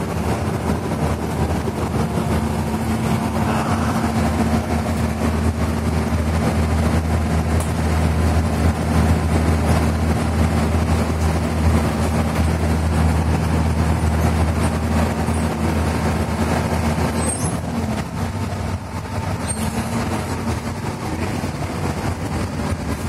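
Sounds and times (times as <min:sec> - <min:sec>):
bus engine running: 0:00.0 - 0:23.0
road noise: 0:00.0 - 0:23.0.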